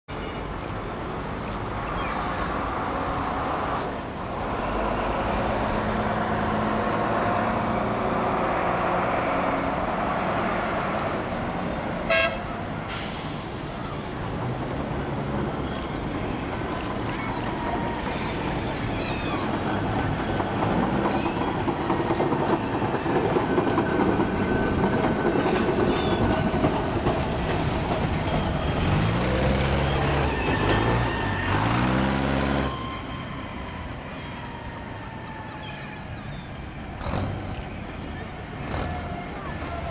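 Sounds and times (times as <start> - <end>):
tram wheels on rails: 0.1 - 39.9
tram horn toot: 11.8 - 12.9, 28.5 - 33.1.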